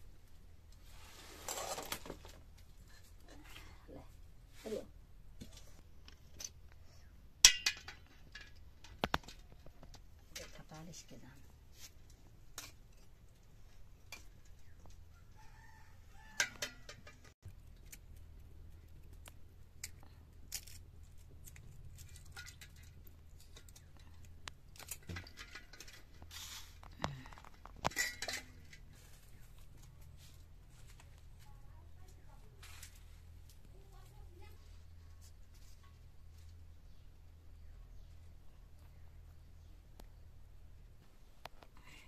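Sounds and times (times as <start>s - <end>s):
eggs clinking in a metal pot: 7.4s - 9.4s.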